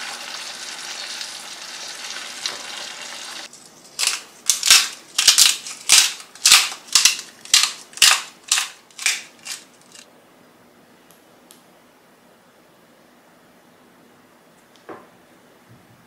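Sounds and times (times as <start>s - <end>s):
pan sizzling: 0.0s - 10.0s
spice grinder crunching: 3.8s - 10.1s.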